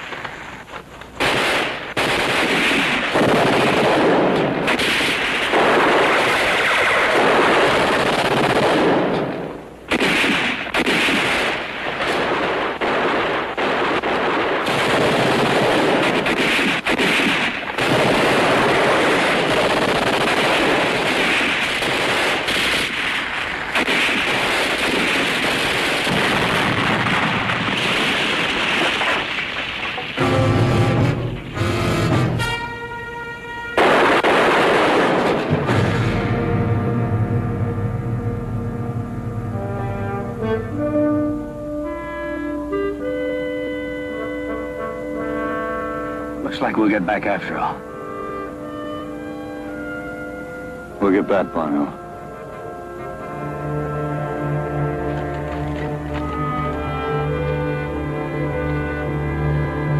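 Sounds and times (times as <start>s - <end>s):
rifle fire: 0.0s - 32.4s, 33.8s - 36.4s
machine-gun fire: 1.2s - 32.4s, 33.8s - 36.4s.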